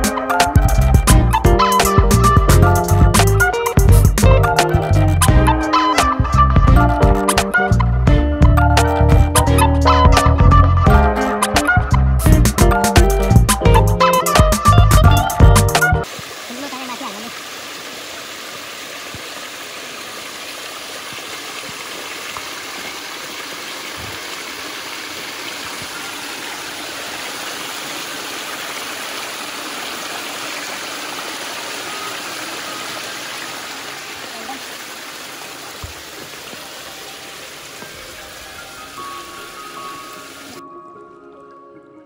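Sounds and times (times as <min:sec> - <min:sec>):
stream water rushing: 0:15.9 - 0:40.6.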